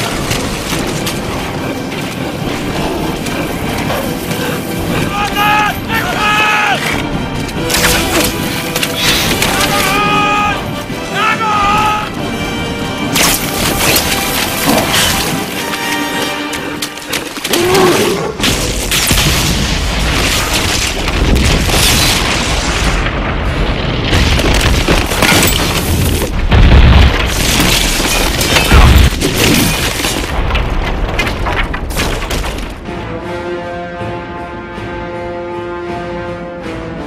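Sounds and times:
music: 0.0s - 19.5s, 31.3s - 37.0s
rumbling explosion: 18.4s - 32.8s.

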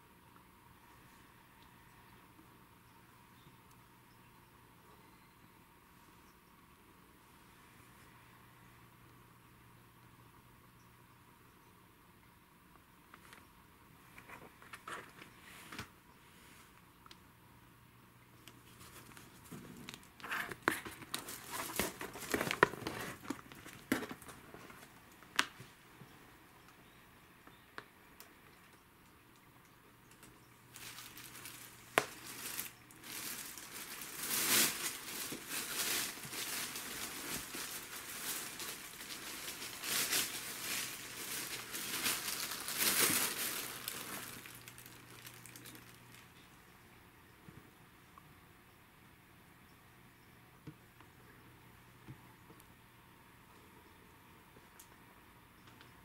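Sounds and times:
plastic sheeting crinkling: 18.5s - 25.6s, 30.2s - 46.4s.

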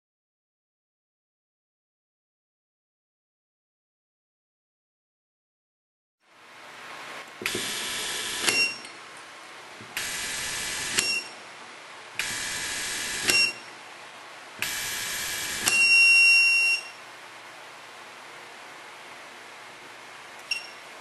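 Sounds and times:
long loud beep: 7.9s - 8.9s, 10.0s - 11.4s, 12.3s - 13.7s, 14.8s - 17.0s
short beeps: 8.4s - 8.9s, 11.0s - 11.4s, 13.2s - 13.7s, 15.7s - 17.0s, 20.5s - 20.8s
electric screwdriver motor: 12.2s - 13.4s
screwdriver click: 15.6s - 15.9s.

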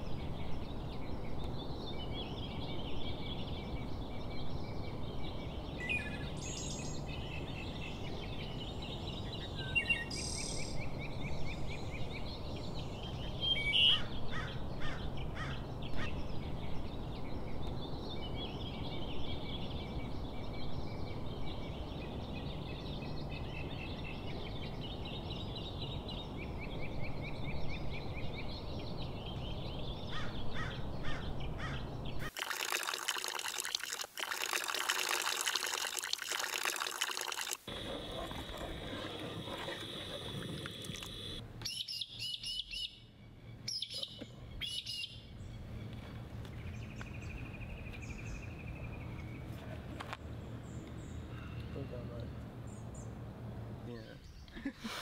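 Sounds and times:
birds chirping: 0.0s - 54.7s
low lakeside background noise: 0.0s - 55.0s
steady hiss: 37.6s - 41.4s.

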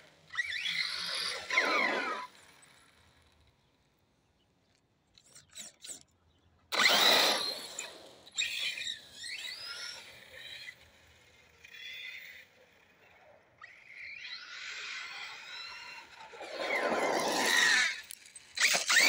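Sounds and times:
electric motor whining: 0.3s - 3.0s, 6.8s - 10.8s, 13.6s - 19.0s
tyre noise on asphalt: 16.3s - 19.0s.

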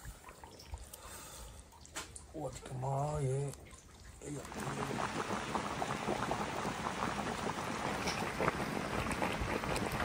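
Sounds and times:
broth boiling in wok: 2.2s - 10.0s.

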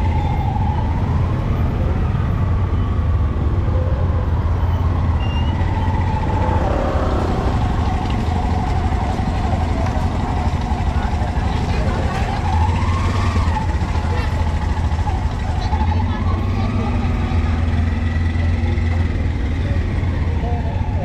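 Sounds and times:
traffic engines rumbling: 0.0s - 21.0s
faint voices: 6.0s - 21.0s.

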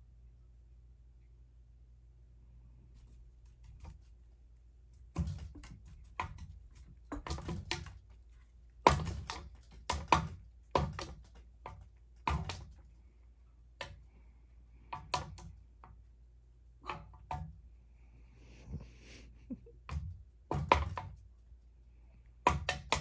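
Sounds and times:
low steady hum: 0.0s - 22.5s
paw slapping fan blades: 3.4s - 14.0s.

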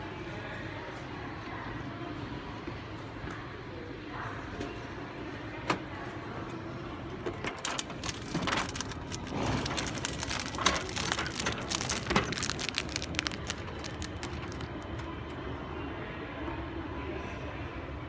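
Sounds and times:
steady background hum: 0.0s - 18.0s
plastic wrapper crinkling: 7.6s - 15.1s.

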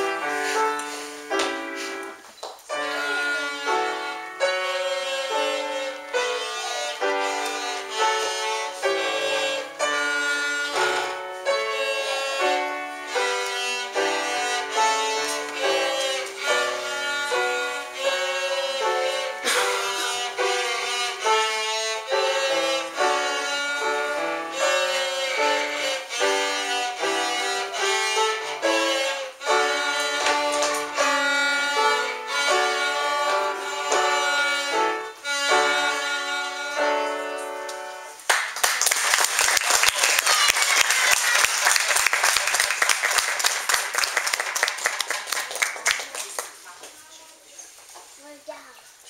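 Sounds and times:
cellos playing: 0.0s - 38.3s
piano accompaniment: 0.0s - 39.9s.

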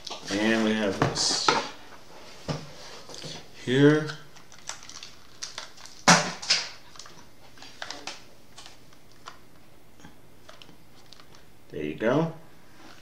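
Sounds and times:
plastic headset clicks and rustles: 4.3s - 9.4s, 10.4s - 11.5s
headset handling noises: 10.4s - 11.5s.

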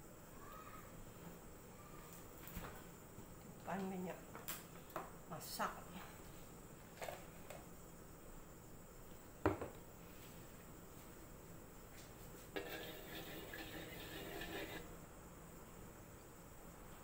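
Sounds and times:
wooden spatula scraping a wok: 12.5s - 14.9s.

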